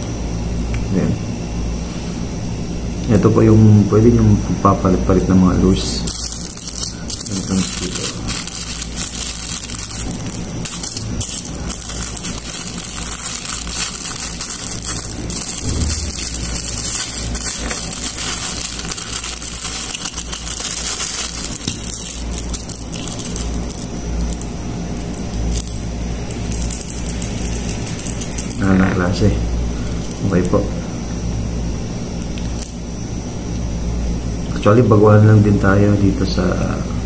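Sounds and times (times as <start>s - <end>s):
steady low hum: 0.0s - 37.0s
plastic packet crinkling: 5.8s - 29.1s.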